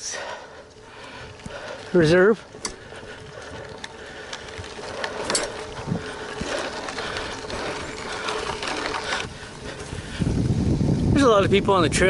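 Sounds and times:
bike rattling over bumps: 0:00.0 - 0:12.0
bike tyres crunching on gravel: 0:00.2 - 0:12.0.

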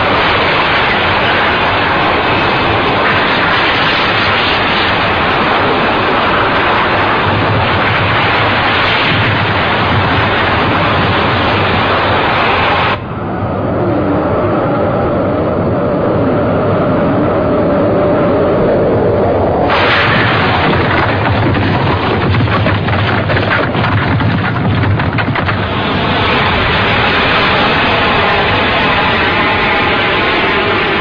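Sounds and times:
crackling crashes: 0:00.0 - 0:13.0, 0:19.6 - 0:31.0
loud rumble: 0:00.0 - 0:31.0.

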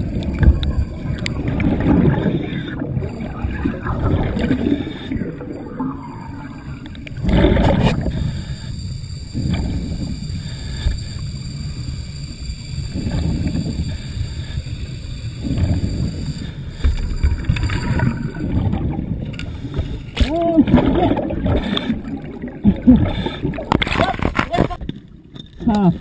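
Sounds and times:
air bubbling underwater: 0:00.0 - 0:08.2, 0:20.2 - 0:24.2.

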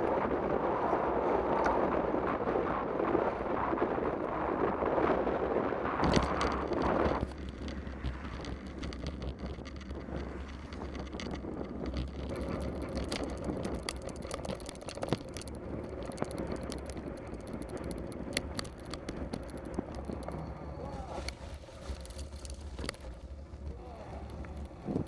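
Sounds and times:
bicycle tyres on wet road: 0:00.0 - 0:25.0
bicycle clicks and rattles: 0:06.0 - 0:25.0.

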